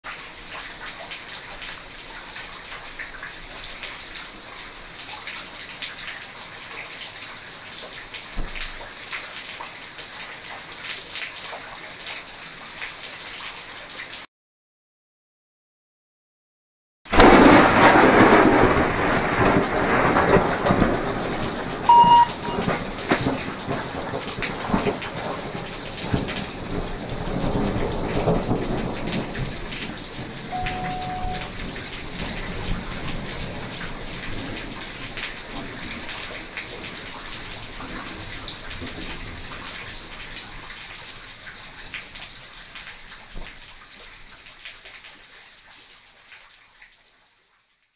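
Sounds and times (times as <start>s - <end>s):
steady rain: 0.1s - 14.3s, 17.1s - 47.9s
thunder rumbling: 17.2s - 24.9s
brief high tone: 21.9s - 22.8s, 30.5s - 31.6s.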